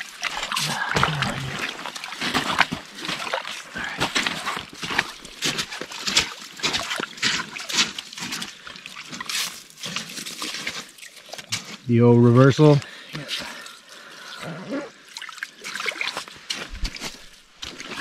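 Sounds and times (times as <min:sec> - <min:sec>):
water dripping: 0:00.0 - 0:11.8
water sloshing and splashing: 0:00.0 - 0:12.0, 0:12.6 - 0:18.0.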